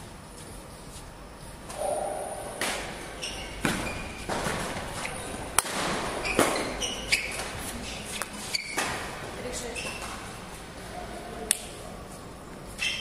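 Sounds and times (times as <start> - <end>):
racket hitting shuttlecock: 1.8 - 3.0
shoe squeaks: 3.1 - 4.3, 6.2 - 8.9, 9.6 - 10.2, 12.8 - 13.0.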